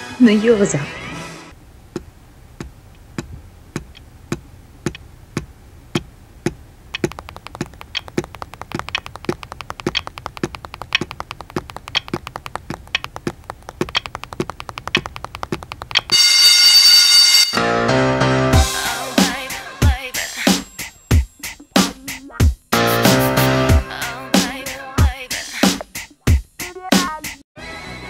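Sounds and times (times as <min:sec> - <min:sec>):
light fast tapping: 0:01.9 - 0:16.1
steady ticking: 0:01.9 - 0:16.2
loud ringing: 0:16.1 - 0:17.8.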